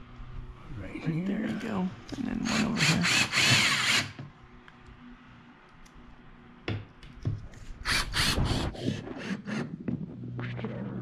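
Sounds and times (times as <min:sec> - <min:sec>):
cordless screw gun driving screws: 0:02.5 - 0:04.2.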